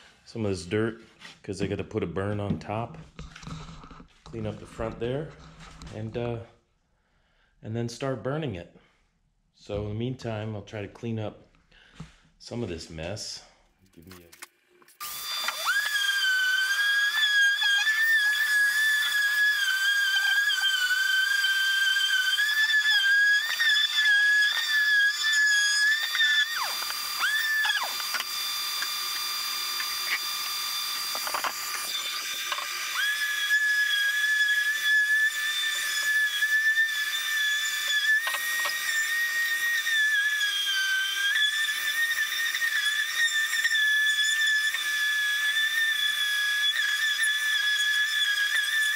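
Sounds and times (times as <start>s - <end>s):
orbital sander whining on wood: 15.0s - 48.9s.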